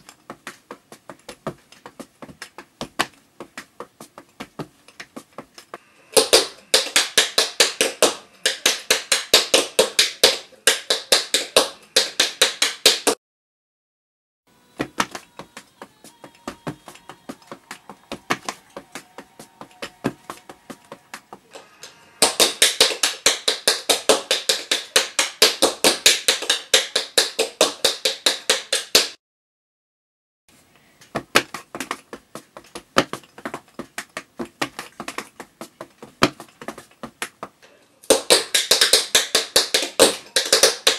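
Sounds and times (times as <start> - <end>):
tap shoes striking floor: 14.8 - 21.5, 31.0 - 40.9.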